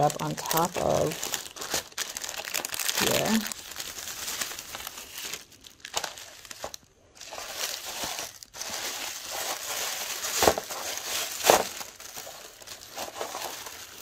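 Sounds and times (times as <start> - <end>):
cellophane and tissue paper crinkling: 0.0 - 14.0.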